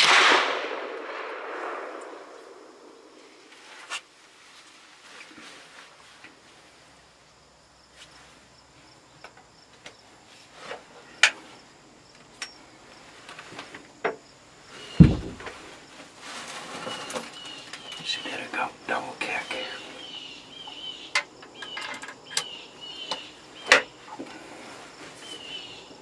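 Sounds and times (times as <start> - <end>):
birds chirping: 14.7 - 15.5, 16.8 - 26.0
heavy low thump: 15.0 - 15.5.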